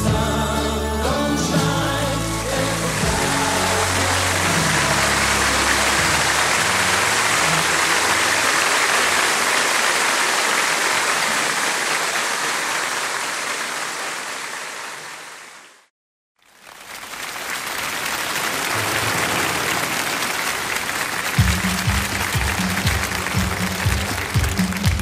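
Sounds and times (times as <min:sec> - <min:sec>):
band playing low notes: 0:00.0 - 0:08.9, 0:21.4 - 0:25.0
audience applauding: 0:01.4 - 0:15.9, 0:16.5 - 0:25.0.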